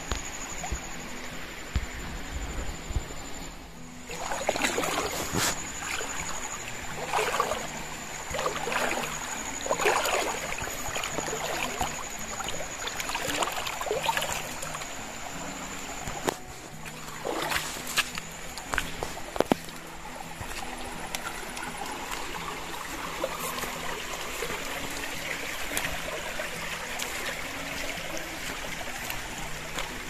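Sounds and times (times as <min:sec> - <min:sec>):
soft background music: 0:00.0 - 0:30.0
footsteps splashing in stream: 0:04.1 - 0:30.0
footsteps squelching on wet path: 0:16.1 - 0:30.0.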